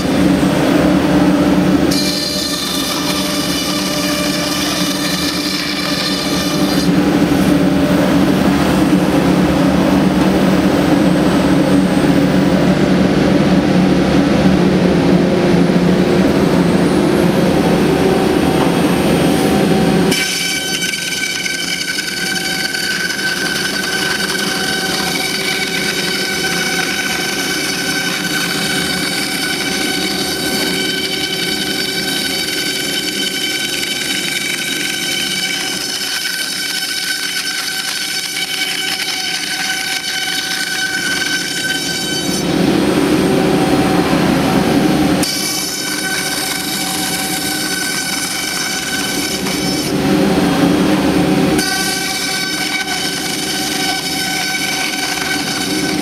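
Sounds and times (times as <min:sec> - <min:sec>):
cnc router machine hum: 0:00.0 - 0:56.0
high-pitched machine whine: 0:00.0 - 0:56.0.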